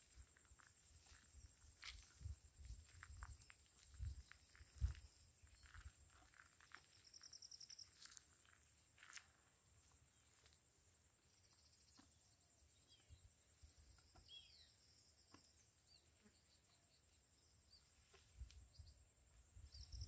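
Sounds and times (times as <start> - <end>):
bird chirps: 13.8 - 17.9.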